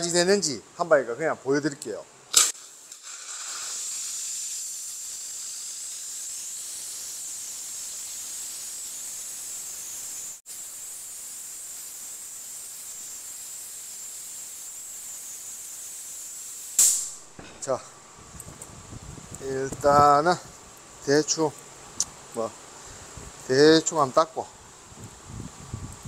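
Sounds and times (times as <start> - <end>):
sharp click: 1.8 - 2.6, 16.8 - 18.6
steam cleaner hissing: 2.3 - 17.8.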